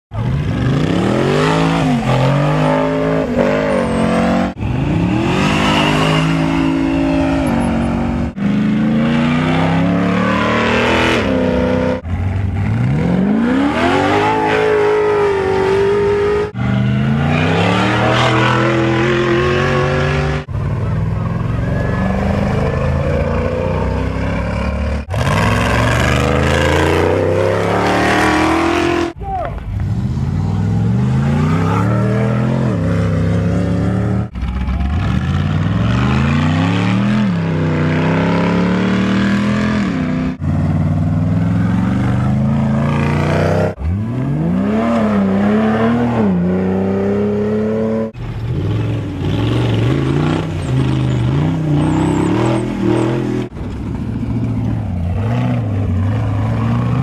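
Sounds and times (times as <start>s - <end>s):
race buggy engines revving: 0.1s - 57.0s.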